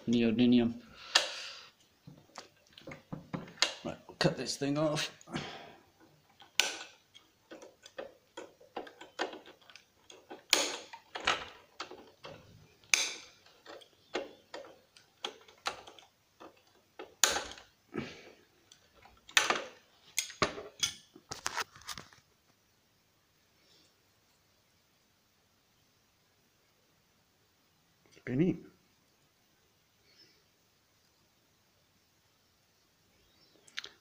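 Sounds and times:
cutters snipping wires: 6.4 - 17.6.

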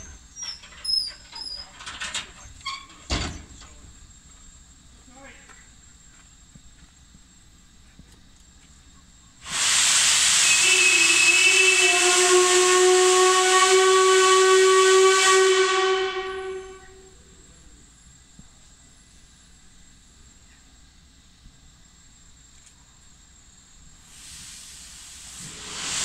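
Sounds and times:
steam hissing: 9.4 - 20.5, 23.6 - 26.0
steam whistle: 9.5 - 17.1.

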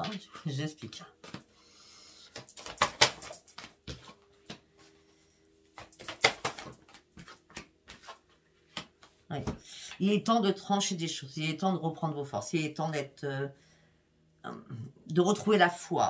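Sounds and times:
cards clicking and rustling: 2.3 - 4.2, 5.8 - 9.0.

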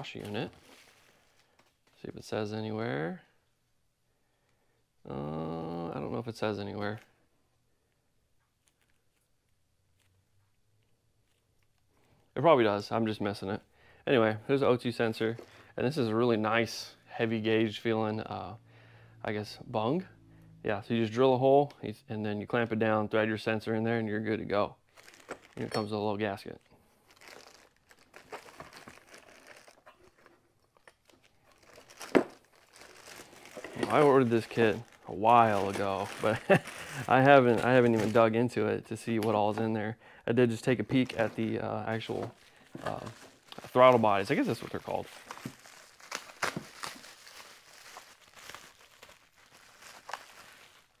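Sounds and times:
plastic bags crinkling: 24.9 - 39.6, 40.6 - 51.0.

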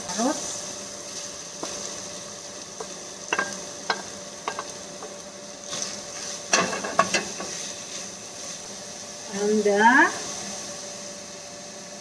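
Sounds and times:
food sizzling in a skillet: 0.0 - 12.0
spatula clattering on pan: 2.8 - 5.2, 6.5 - 7.5.

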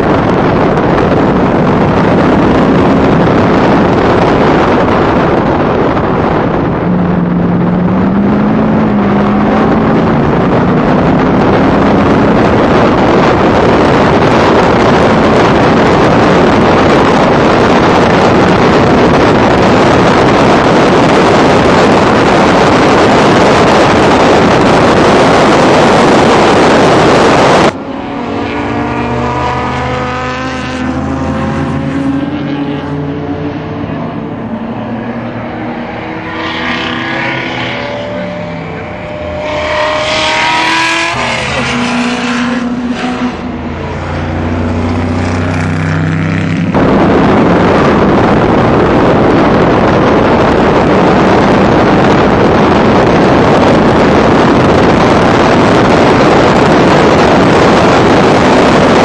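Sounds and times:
race car engine roar: 0.0 - 59.0
wind rushing over microphone: 0.0 - 59.0.

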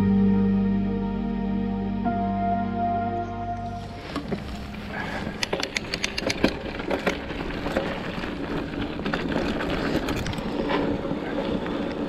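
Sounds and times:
bike tyres on loose gravel: 3.9 - 12.0
bike rattling over bumps: 4.0 - 12.0.

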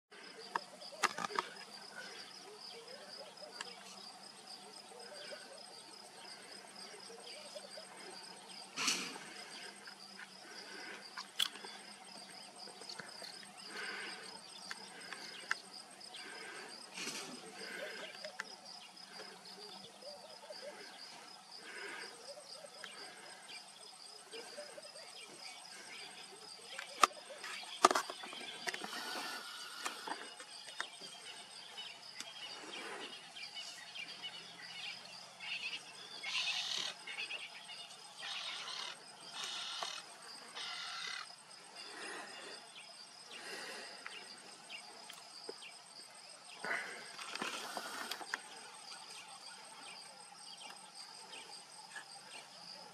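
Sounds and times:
insects chirring: 0.1 - 52.9.

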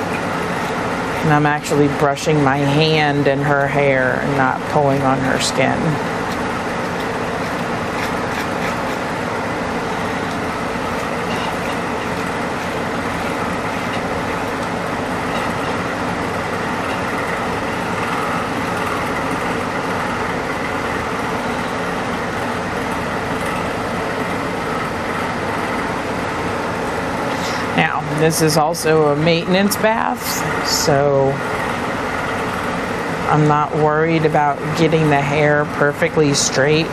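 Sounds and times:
brush scratching wet hair: 6.1 - 18.8.

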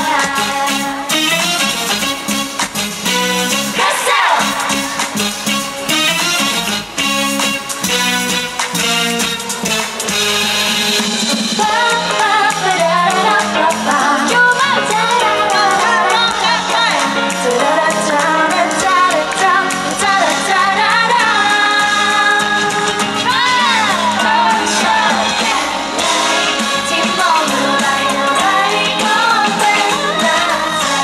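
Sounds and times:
women singing: 0.0 - 1.1, 3.8 - 4.9, 11.6 - 31.0
pop band playing: 0.0 - 31.0.

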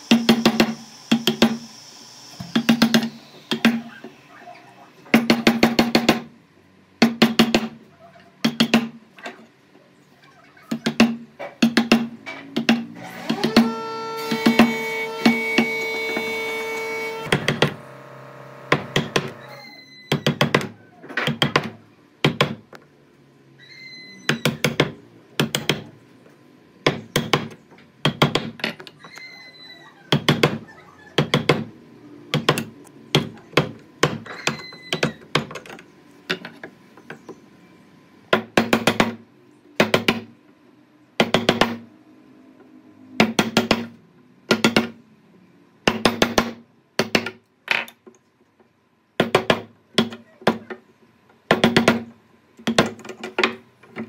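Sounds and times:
hammering on wood: 5.1 - 6.3, 7.0 - 7.8, 8.4 - 9.0, 10.7 - 16.4, 20.1 - 22.6, 24.4 - 25.9, 26.8 - 28.6, 30.1 - 30.6, 31.2 - 31.7, 32.3 - 34.6, 38.3 - 39.2, 39.8 - 40.3, 41.2 - 41.8, 43.2 - 45.0, 45.8 - 47.4, 49.2 - 50.8, 51.5 - 53.6.

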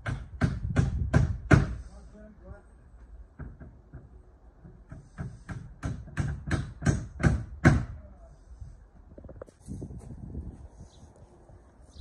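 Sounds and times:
hammering on timber: 0.0 - 1.8, 3.3 - 8.0.

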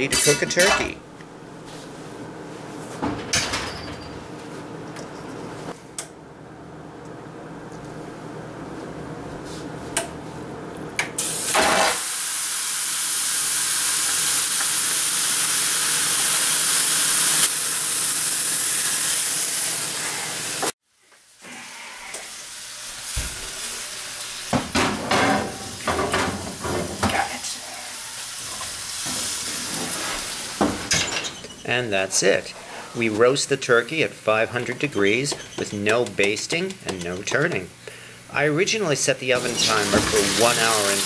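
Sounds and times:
skin searing loud sizzle: 11.2 - 24.5
heavy pan knocking and clanking: 24.5 - 27.1.

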